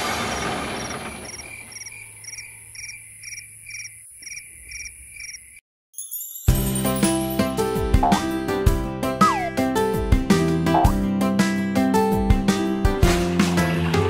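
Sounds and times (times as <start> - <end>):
crickets chirping: 0.4 - 5.6
music: 6.0 - 14.0.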